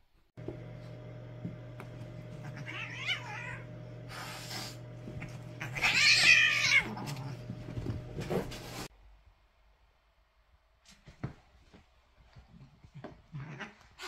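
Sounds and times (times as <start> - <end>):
cats yowling: 2.4 - 3.7, 5.5 - 7.4.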